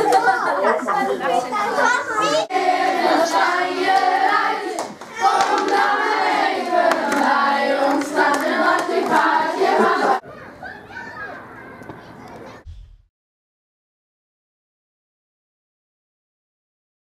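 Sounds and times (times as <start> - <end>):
children singing: 0.0 - 0.7, 1.7 - 10.2
hands clapping: 4.8 - 6.1, 6.8 - 9.9.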